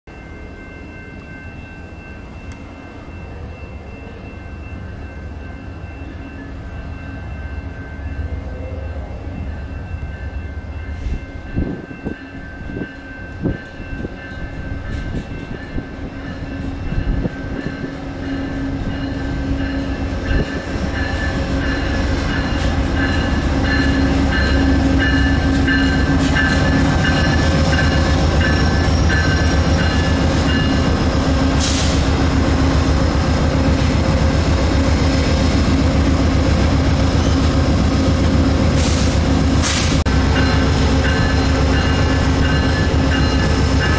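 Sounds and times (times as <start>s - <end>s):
diesel locomotive engine hum: 0.1s - 43.9s
brief hissing: 38.8s - 40.0s.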